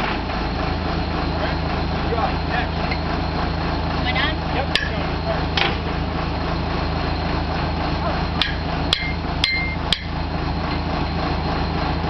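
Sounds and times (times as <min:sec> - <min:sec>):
drill rig engine running: 0:00.0 - 0:12.0
metal-on-metal strikes: 0:04.8 - 0:05.0, 0:08.4 - 0:10.2.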